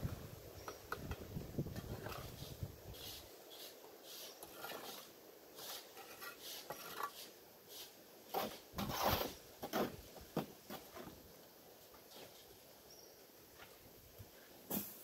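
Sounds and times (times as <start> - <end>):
trowel scraping mortar: 1.9 - 10.0.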